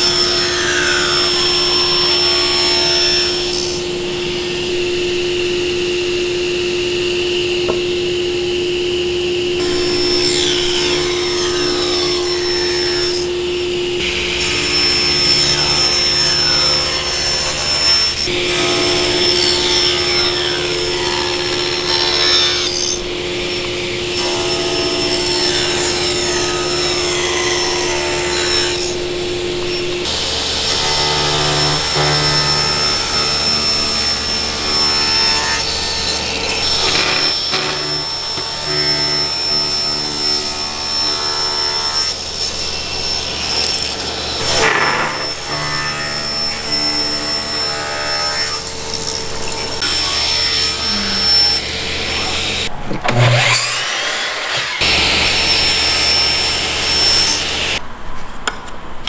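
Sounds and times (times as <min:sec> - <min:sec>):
table saw ripping wood: 0:29.8 - 0:57.8.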